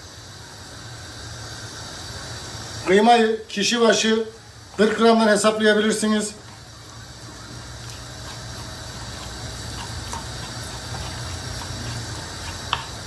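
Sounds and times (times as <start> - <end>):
meat sizzling in frying pan: 0.0 - 13.0
spatula tapping and scraping pan: 7.8 - 13.0.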